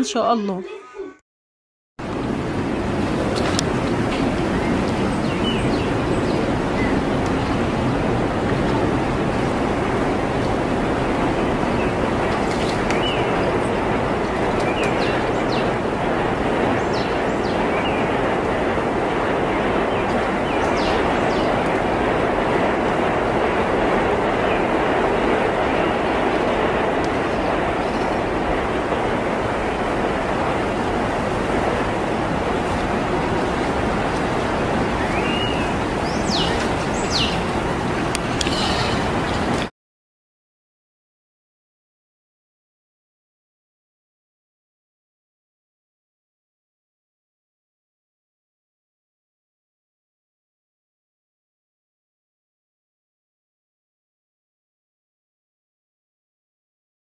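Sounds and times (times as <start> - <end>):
rushing water: 2.0 - 39.7.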